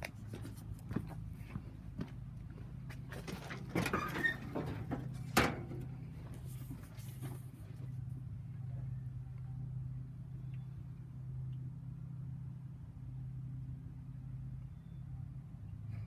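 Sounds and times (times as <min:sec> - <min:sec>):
car engine idling: 0:01.3 - 0:10.7
knocks and clatter: 0:03.2 - 0:06.0.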